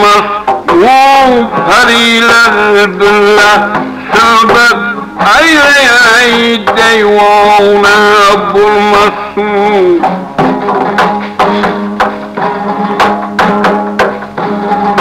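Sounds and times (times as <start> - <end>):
person singing: 0.0 - 13.1
hand drum beating: 0.0 - 15.0
sustained melody notes: 7.1 - 15.0.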